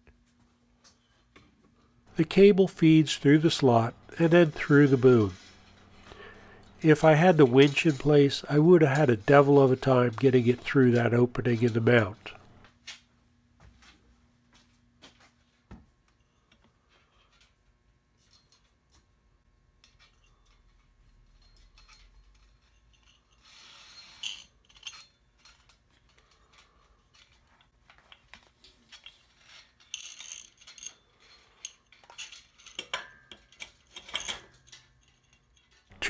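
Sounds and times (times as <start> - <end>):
steel parts clicking and scraping: 2.1 - 12.6, 19.8 - 36.0.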